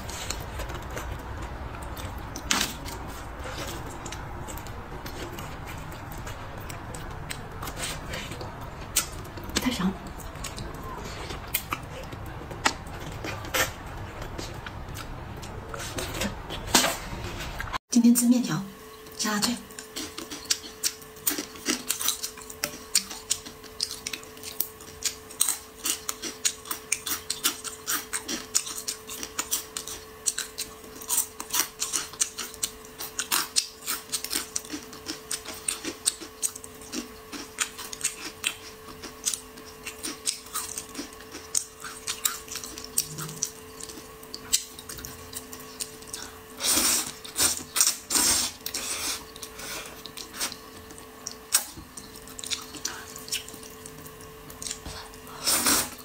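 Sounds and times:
wet chewing and smacking: 0.0s - 16.6s, 19.7s - 46.4s, 47.1s - 55.2s
faint steady hum: 0.0s - 56.0s
noodle slurping: 46.1s - 50.7s, 54.7s - 56.0s.

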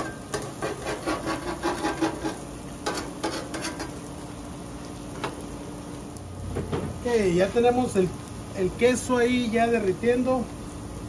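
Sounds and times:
metal spatula scraping griddle: 0.0s - 4.0s.

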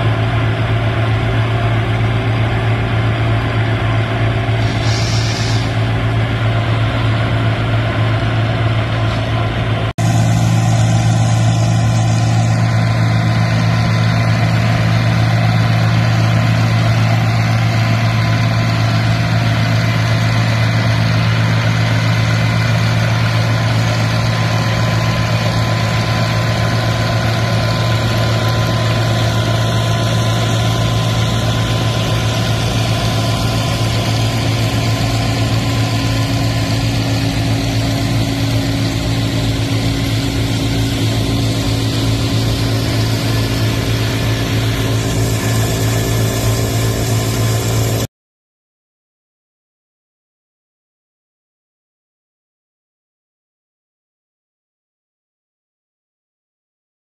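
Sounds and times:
tractor engine running: 0.0s - 48.1s
flail chopper cutting grass: 36.7s - 48.0s.

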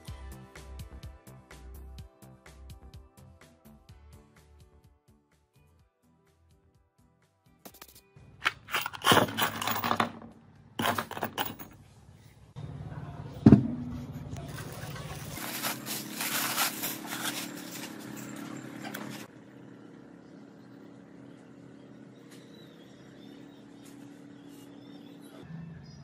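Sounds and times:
scraping and clattering: 8.4s - 11.8s, 13.6s - 19.3s
plastic masking crinkling: 14.5s - 19.3s.

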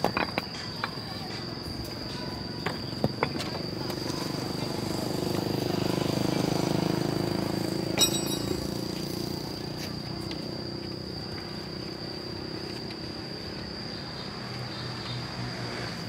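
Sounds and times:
vehicle engine: 3.6s - 13.6s
steel bar clinking on metal: 8.0s - 8.6s.

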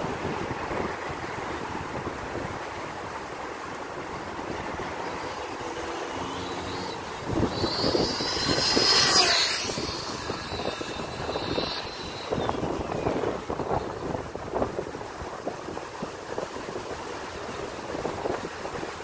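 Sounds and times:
electric rc car motor whine: 4.2s - 14.7s.

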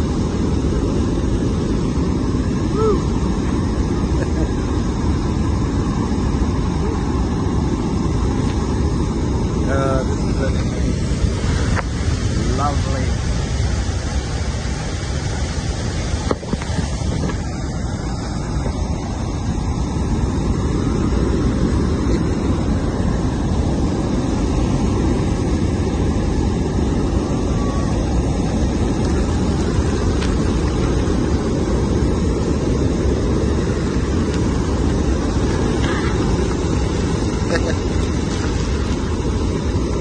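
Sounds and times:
waterfall rushing roar: 0.0s - 40.0s
wind rumbling on microphone: 0.0s - 40.0s.

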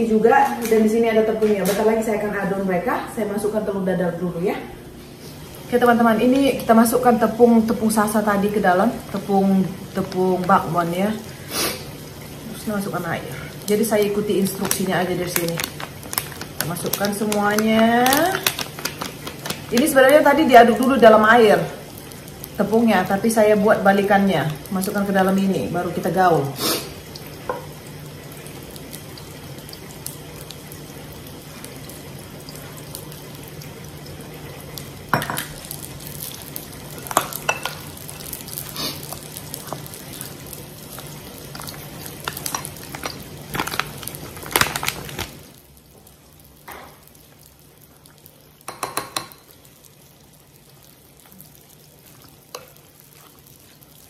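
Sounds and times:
kitchen hiss and hum: 0.0s - 54.0s
batter being stirred in a bowl: 13.7s - 21.1s, 35.2s - 45.3s, 48.0s - 49.7s, 50.8s - 54.0s.

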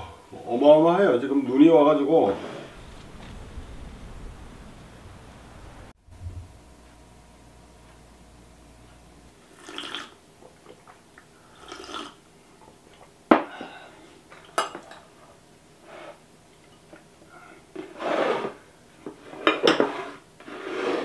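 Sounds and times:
sipping from a mug: 9.5s - 12.2s.

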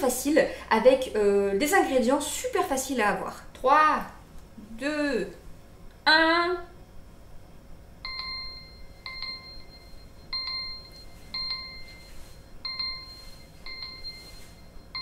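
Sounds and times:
timer alarm bell-like chime: 8.0s - 15.0s.

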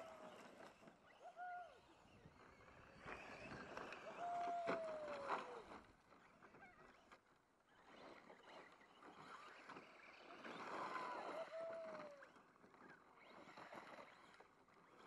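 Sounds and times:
toy truck motor whine: 7.7s - 15.0s.

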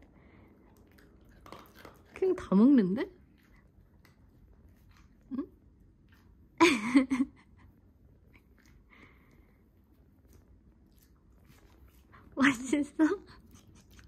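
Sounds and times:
dog chewing dry kibble: 0.5s - 2.5s.

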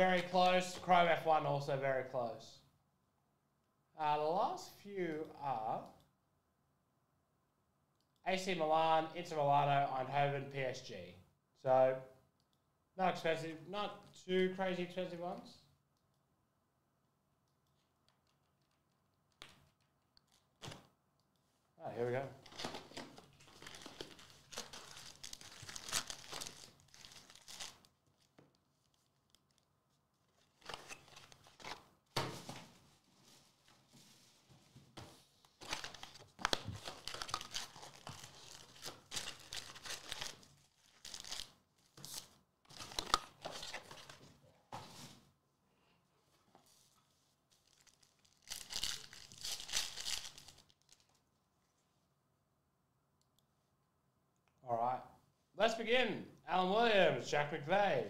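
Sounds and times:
packaging tearing and crinkling: 22.4s - 28.3s, 35.6s - 44.0s, 47.6s - 51.2s.

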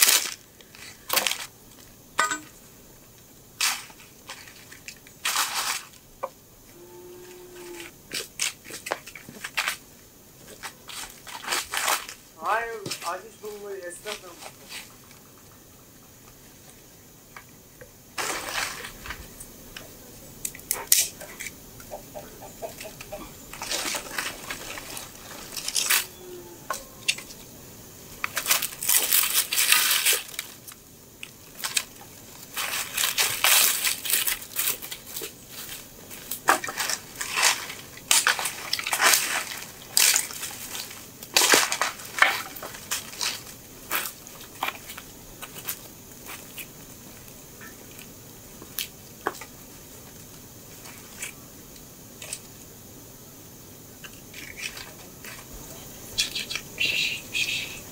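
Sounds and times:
sticks clattering onto pile: 1.1s - 1.5s, 2.2s - 2.6s, 18.2s - 19.2s, 22.8s - 27.4s, 28.2s - 30.8s, 31.5s - 45.9s
dry branches snapping: 23.6s - 26.2s, 36.2s - 44.8s.

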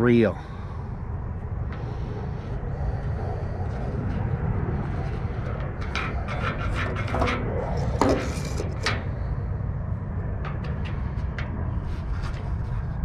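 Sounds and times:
wind buffeting microphone: 0.0s - 13.0s
scraping and tapping handling sounds: 5.6s - 9.1s.

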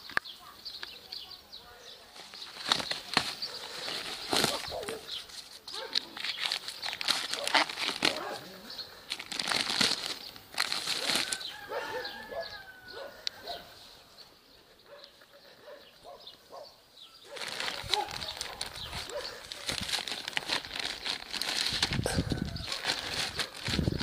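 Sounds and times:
plastic film crinkling: 2.1s - 12.8s, 17.2s - 24.0s.

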